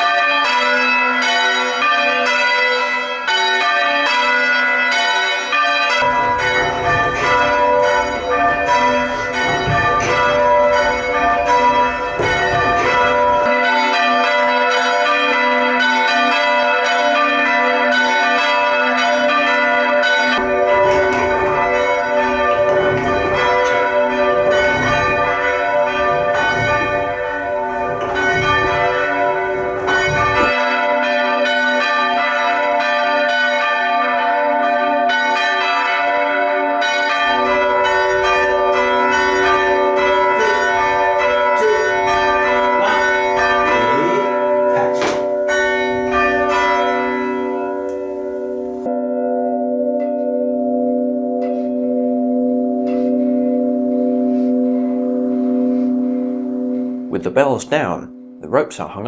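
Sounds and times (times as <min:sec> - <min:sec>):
church bells ringing: 0:00.0 - 0:59.0.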